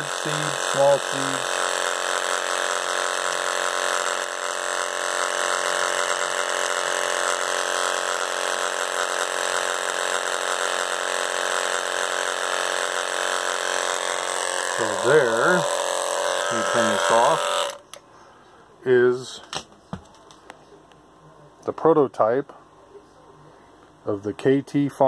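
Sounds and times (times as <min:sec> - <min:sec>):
vibrating seeder buzzing: 0:00.0 - 0:18.0.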